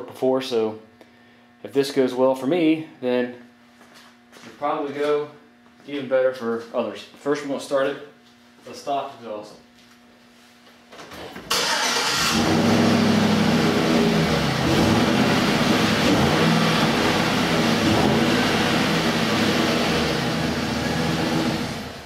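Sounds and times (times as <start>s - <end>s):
pickup engine starting and running: 11.5s - 22.0s.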